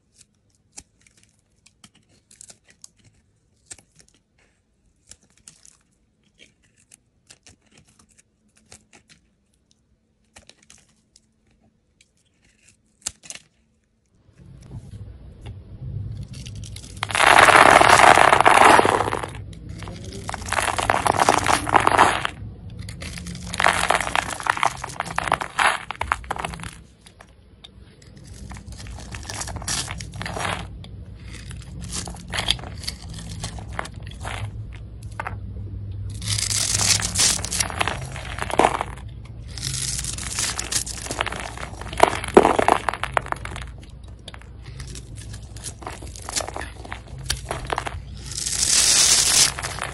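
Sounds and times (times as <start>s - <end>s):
knife shaving soap: 0.0s - 14.2s, 26.1s - 34.6s, 36.1s - 43.2s
steady low hum: 14.2s - 49.9s.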